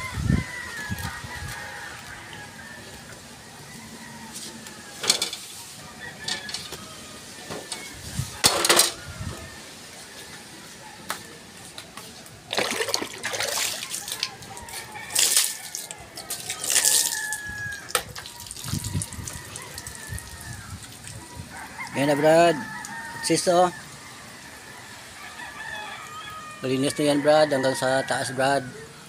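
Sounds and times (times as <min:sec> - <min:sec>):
water splashing in a basin: 0:12.5 - 0:14.5, 0:15.1 - 0:21.2.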